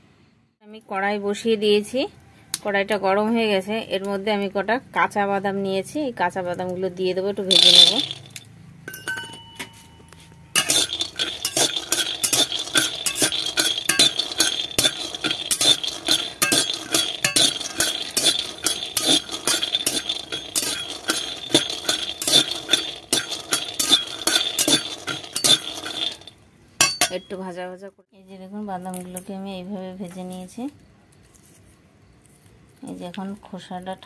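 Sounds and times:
peanuts rattling in pan: 7.4 - 8.4, 10.6 - 27.2
metal spatula scraping pan: 7.5 - 8.4, 10.6 - 27.2
pan ringing: 7.5 - 27.3.

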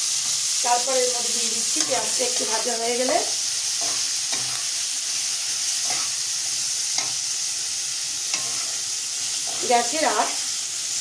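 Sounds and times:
onions sizzling in oil: 0.0 - 11.0
stirring strokes against pan: 0.0 - 11.0.

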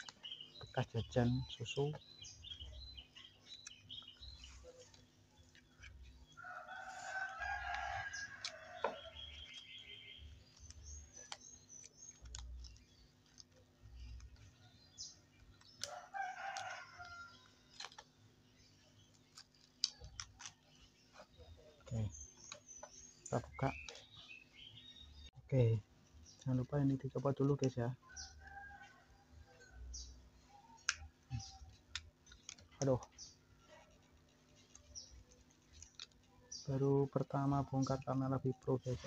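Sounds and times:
rooster crowing: 6.4 - 9.1.

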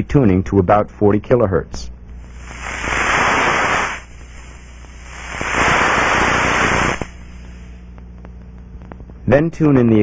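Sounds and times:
air leak hissing: 2.2 - 7.9.

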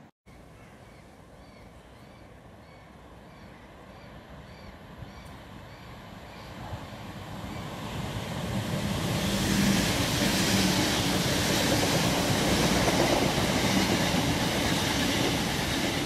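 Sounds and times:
train wheels running on rails: 6.5 - 16.0.

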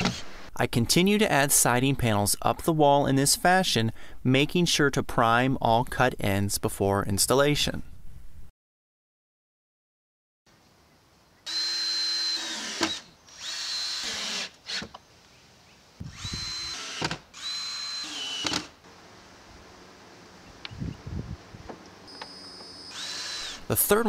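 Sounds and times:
drill driving screws: 0.0 - 0.4, 11.5 - 15.0, 16.0 - 18.8, 22.1 - 23.7.

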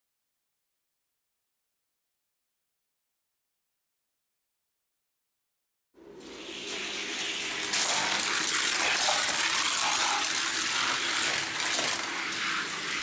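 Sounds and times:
toy cars rolling down track: 7.3 - 13.0.

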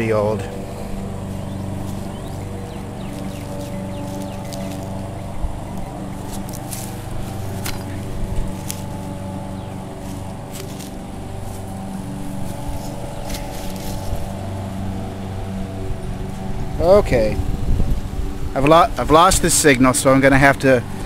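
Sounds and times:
low motor hum: 0.0 - 21.0
hand digging in soil: 0.7 - 14.5.

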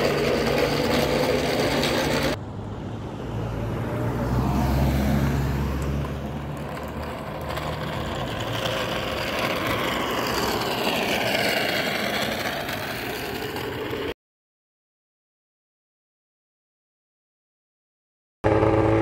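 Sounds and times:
tyres rolling: 0.0 - 2.4, 5.7 - 14.1
pickup truck engine passing: 0.0 - 14.1.

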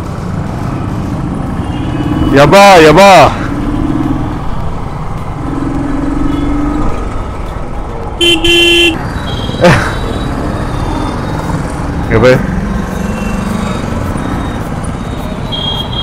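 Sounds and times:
vehicle horns honking: 8.2 - 10.3.

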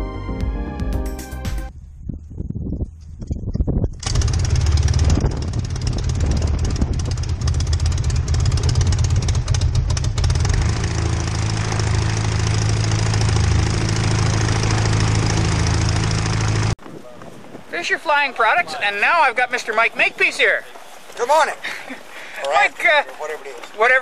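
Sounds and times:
two-stroke aircraft engine running: 3.8 - 16.8.

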